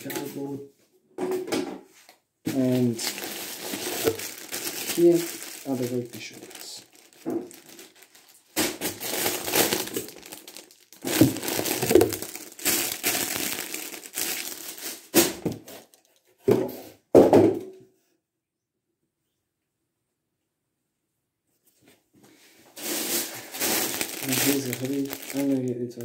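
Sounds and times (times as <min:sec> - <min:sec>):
plastic bags crinkling: 0:02.5 - 0:16.2, 0:22.7 - 0:26.0.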